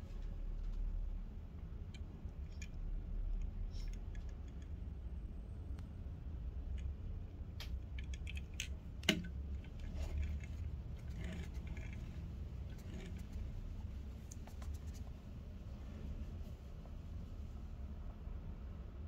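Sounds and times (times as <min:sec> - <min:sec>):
low steady hum: 0:00.0 - 0:19.0
toy car clicking on a tabletop: 0:07.6 - 0:13.4.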